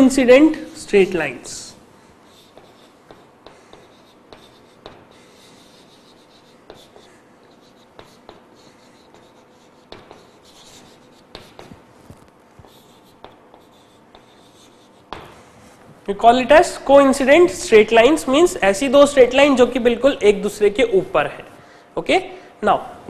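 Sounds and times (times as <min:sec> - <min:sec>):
chalk writing on blackboard: 0:02.0 - 0:16.0.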